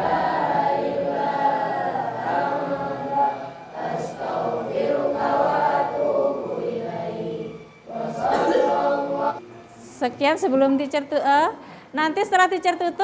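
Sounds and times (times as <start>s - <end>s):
children reciting in unison: 0.0s - 9.5s.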